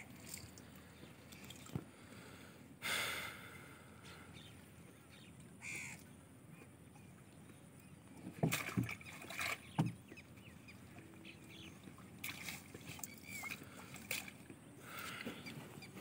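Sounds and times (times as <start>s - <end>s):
water splashes: 0.0s - 2.0s, 8.1s - 16.0s
sharp knocks on wooden boat: 8.2s - 9.0s, 9.7s - 10.0s.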